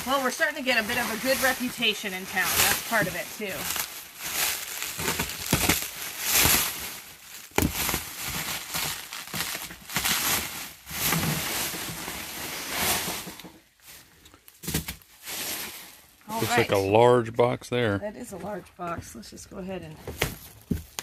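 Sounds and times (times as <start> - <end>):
plastic wrap crinkling and tearing: 0.0 - 16.8
plastic wrap snapping: 2.4 - 12.3.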